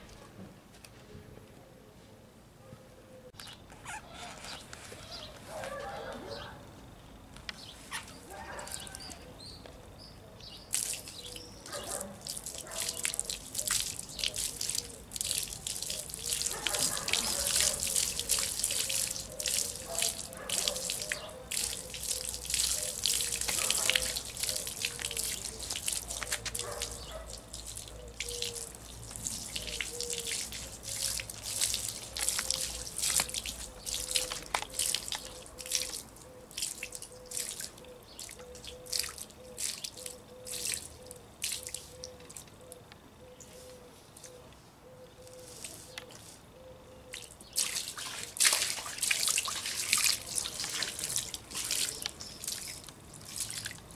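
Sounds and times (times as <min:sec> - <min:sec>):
water splashing in plastic tub: 0:10.7 - 0:42.4, 0:47.2 - 0:53.9
water dripping: 0:10.7 - 0:42.7, 0:47.1 - 0:53.9.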